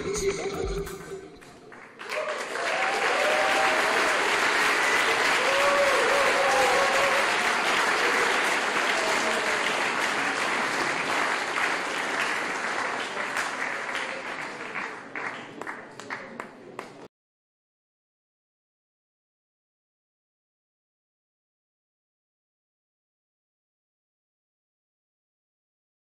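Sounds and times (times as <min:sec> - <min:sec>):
audience applauding: 0:00.0 - 0:17.1
voices cheering: 0:02.0 - 0:10.0.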